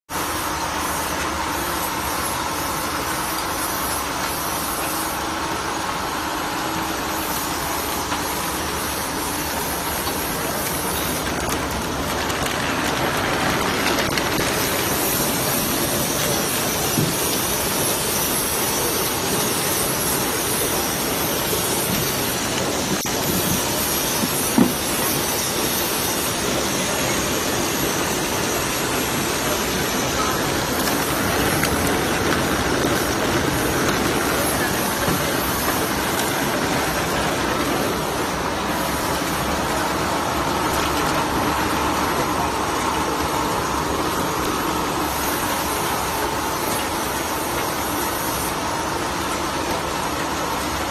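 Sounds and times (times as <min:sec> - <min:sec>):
packing machine hiss and whir: 0:00.1 - 0:50.9.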